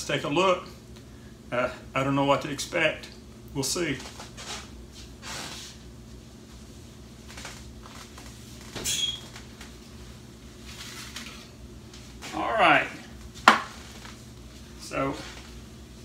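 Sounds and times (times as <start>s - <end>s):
oven door squeaky clunk: 8.7s - 9.3s.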